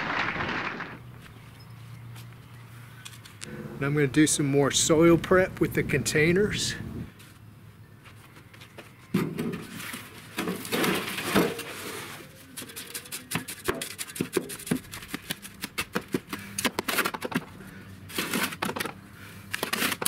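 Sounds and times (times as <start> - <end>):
soil sliding into wheelbarrow: 9.7 - 13.1
shovel scraping through soil: 18.1 - 18.9, 19.5 - 20.0.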